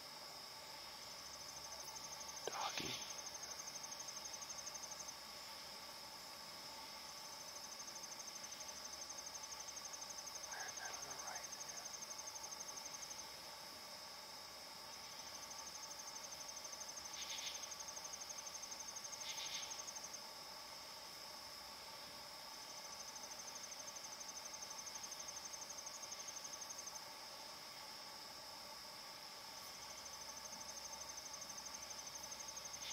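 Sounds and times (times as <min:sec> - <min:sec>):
insect chorus drone: 0:00.0 - 0:32.9
pulsing insect trill: 0:00.0 - 0:32.9
scratchy insect calls: 0:00.7 - 0:05.8, 0:06.7 - 0:13.5, 0:14.8 - 0:20.2, 0:29.6 - 0:32.9.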